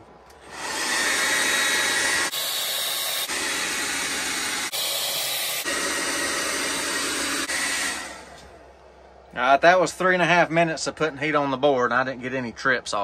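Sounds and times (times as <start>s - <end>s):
hot-air gun blowing: 0.4s - 8.6s.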